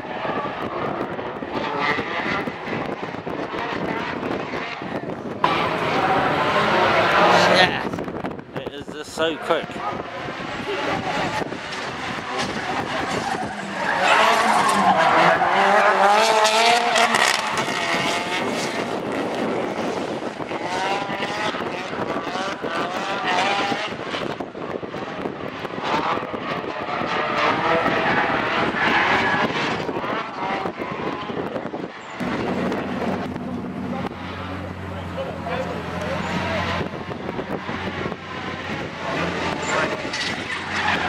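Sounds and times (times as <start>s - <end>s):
car engines revving: 0.0s - 41.0s
tyres screeching: 38.6s - 41.0s.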